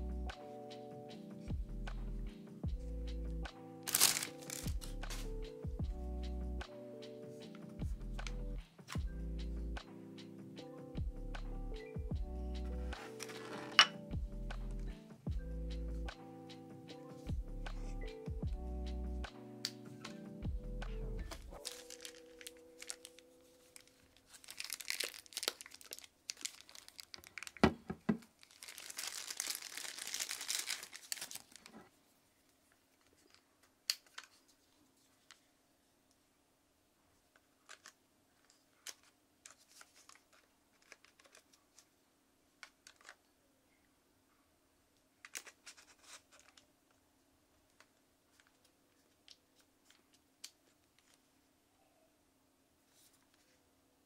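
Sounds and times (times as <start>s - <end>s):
plastic packaging crinkling and tearing: 3.8s - 5.2s, 13.0s - 13.9s, 21.5s - 31.9s, 37.6s - 38.0s, 38.8s - 41.8s, 42.8s - 43.2s, 45.2s - 46.7s.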